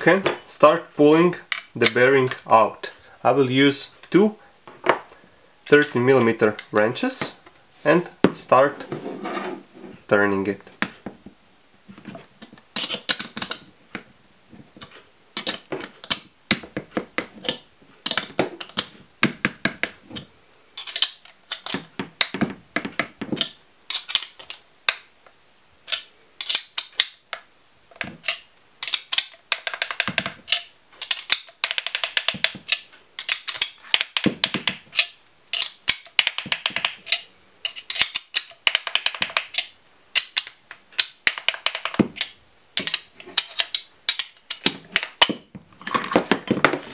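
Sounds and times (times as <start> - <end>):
wrenches clicking on metal: 12.4 - 13.7, 14.8 - 19.0, 19.7 - 25.0, 25.8 - 27.4, 28.0 - 46.9.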